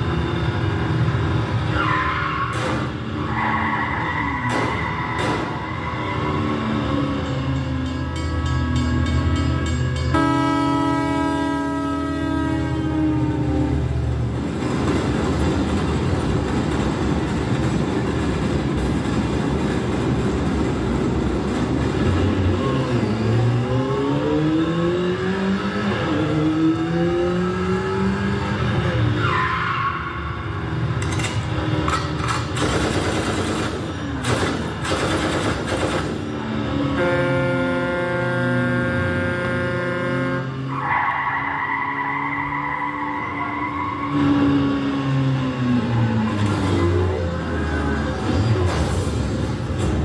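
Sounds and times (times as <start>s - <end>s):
racing car engines revving: 21.5s - 32.6s, 36.1s - 50.0s
tyre screech: 40.7s - 44.5s.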